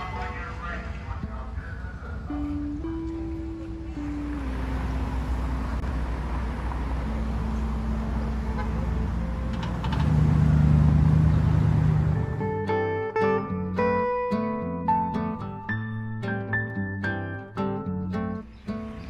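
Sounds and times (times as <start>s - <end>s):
street traffic rumbling: 0.0s - 19.0s
car passing close: 3.2s - 12.6s.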